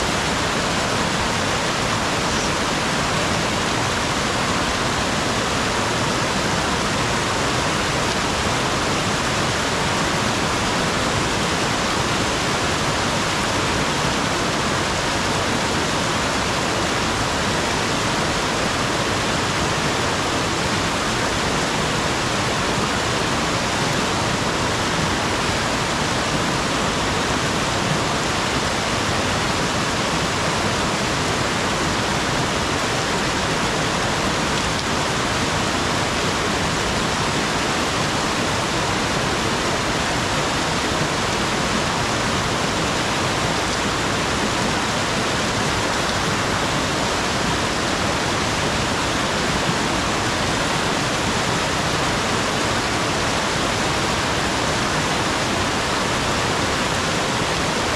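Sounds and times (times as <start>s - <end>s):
steady rushing noise: 0.0s - 57.9s.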